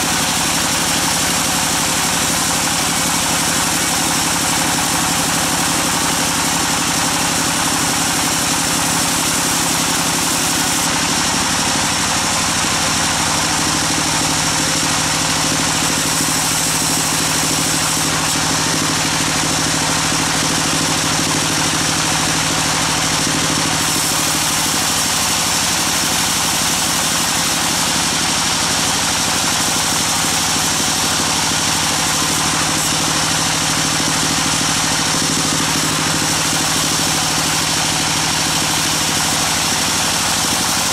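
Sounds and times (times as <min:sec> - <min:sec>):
saw blade hissing through wood: 0:00.0 - 0:11.0, 0:15.4 - 0:19.4, 0:23.6 - 0:40.9
motor hum: 0:00.0 - 0:40.9.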